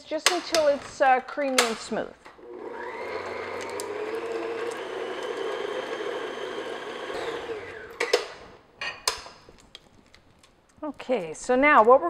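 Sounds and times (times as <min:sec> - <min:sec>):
stand mixer motor running: 0:02.4 - 0:08.2.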